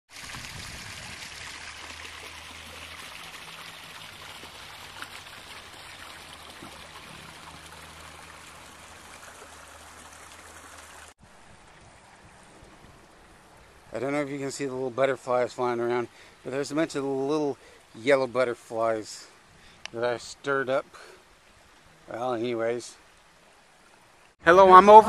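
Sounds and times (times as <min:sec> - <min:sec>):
stream rushing over rocks: 0:00.1 - 0:14.9.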